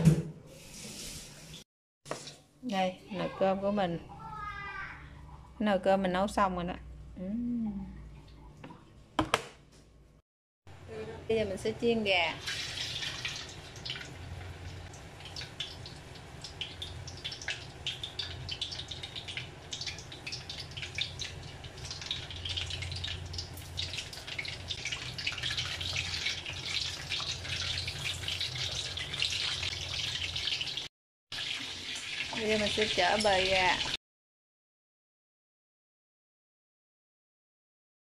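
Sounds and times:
chicken sizzling in hot oil: 0:11.3 - 0:34.0.

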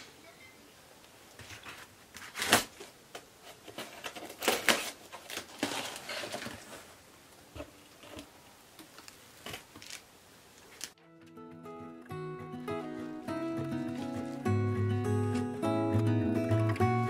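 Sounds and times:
cardboard and tape rustling: 0:01.3 - 0:11.0, 0:13.6 - 0:15.6.

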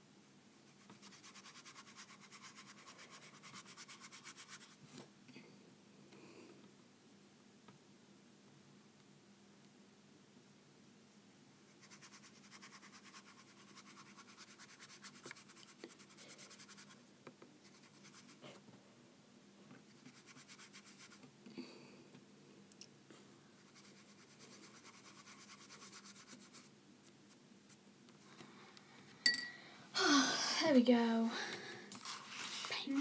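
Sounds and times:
paintbrush scrubbing on paper: 0:00.7 - 0:04.8, 0:11.7 - 0:17.0, 0:17.6 - 0:18.4, 0:19.9 - 0:21.2, 0:23.6 - 0:27.8, 0:32.0 - 0:33.0.

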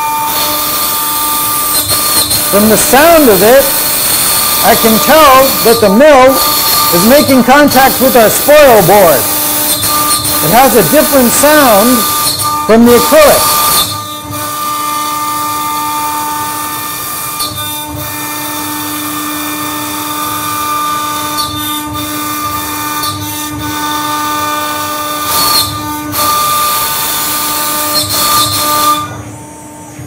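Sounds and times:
end mill cutting plastic: 0:00.0 - 0:29.3
router spindle whining: 0:00.0 - 0:29.9.

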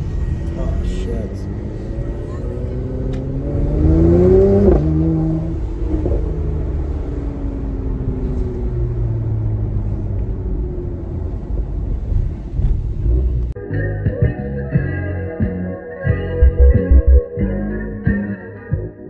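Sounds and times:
car engine accelerating: 0:00.0 - 0:13.6, 0:16.4 - 0:17.2.

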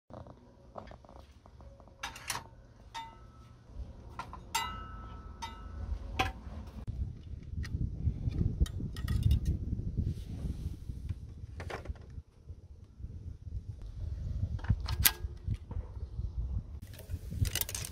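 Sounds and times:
metal tools clinking: 0:01.6 - 0:06.4.

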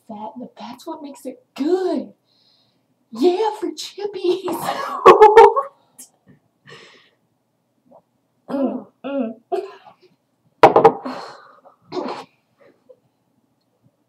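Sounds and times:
girl clearing her throat: 0:08.5 - 0:10.0, 0:11.9 - 0:12.3
girl coughing: 0:08.5 - 0:10.0, 0:11.9 - 0:12.3.

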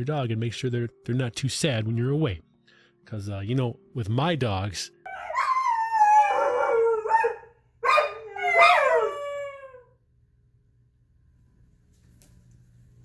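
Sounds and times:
dog howling: 0:05.1 - 0:10.0.

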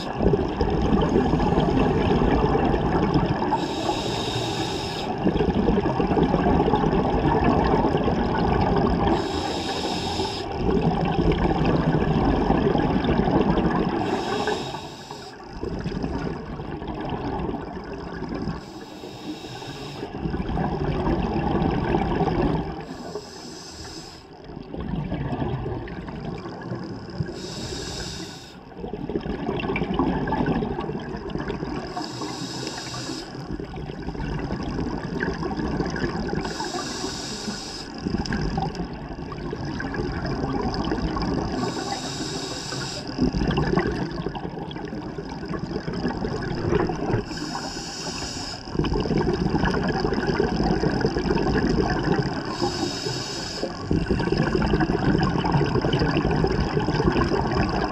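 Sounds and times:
exhaled bubbles burbling: 0:00.0 - 0:04.3, 0:05.0 - 0:18.8, 0:20.1 - 0:23.4, 0:24.2 - 0:27.6, 0:28.6 - 0:37.1, 0:38.0 - 0:47.8, 0:48.6 - 0:57.9
regulator inhalation hiss: 0:03.5 - 0:05.1, 0:09.1 - 0:10.6, 0:14.0 - 0:15.5, 0:18.6 - 0:20.2, 0:22.8 - 0:24.4, 0:27.2 - 0:28.6, 0:31.9 - 0:33.4, 0:36.4 - 0:38.0, 0:41.5 - 0:43.3, 0:47.2 - 0:48.8, 0:52.4 - 0:53.8.

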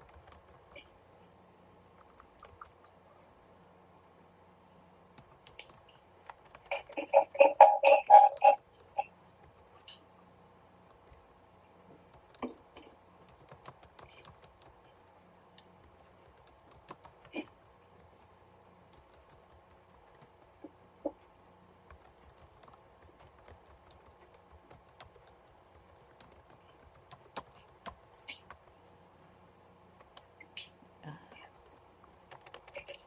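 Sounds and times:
typing on computer keyboard: 0:00.0 - 0:01.0, 0:01.9 - 0:02.9, 0:05.2 - 0:09.9, 0:12.1 - 0:15.0, 0:15.8 - 0:18.1, 0:18.9 - 0:21.2, 0:21.8 - 0:28.8, 0:30.0 - 0:30.3, 0:31.4 - 0:33.0
faint steady hum: 0:00.0 - 0:33.0.

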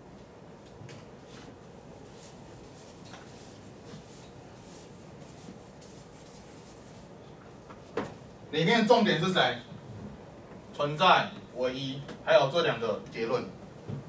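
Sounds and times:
eraser swishing on blackboard: 0:01.3 - 0:07.1.

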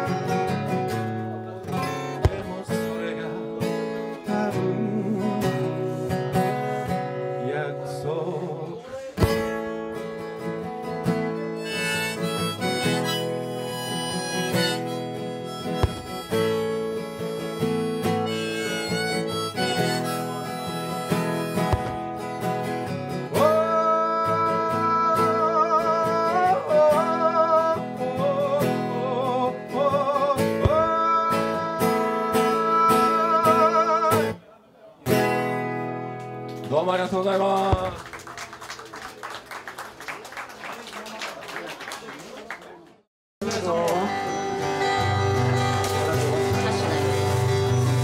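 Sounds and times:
acoustic guitar strumming: 0:00.0 - 0:34.4, 0:35.0 - 0:36.6, 0:43.4 - 0:48.0
harmonica melody: 0:11.4 - 0:25.1, 0:44.1 - 0:48.0.

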